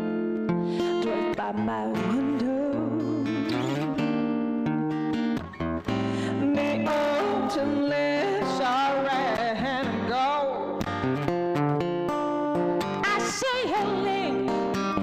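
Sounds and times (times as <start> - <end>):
acoustic guitar chords: 0.0 - 15.0
woman singing with vibrato: 0.8 - 4.1, 6.0 - 10.8, 13.0 - 14.6.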